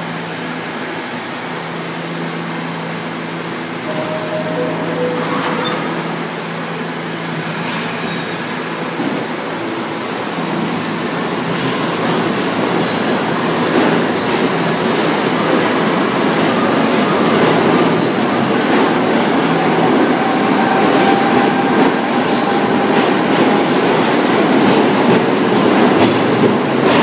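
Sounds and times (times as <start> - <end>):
subway train pulling out: 0.0 - 27.0
two-note door chime: 3.9 - 6.9.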